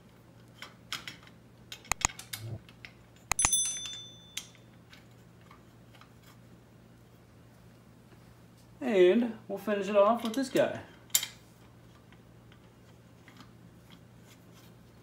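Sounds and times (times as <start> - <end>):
bell-like metal clink: 3.3 - 4.6
tools and bolts clinking on metal: 3.3 - 6.0.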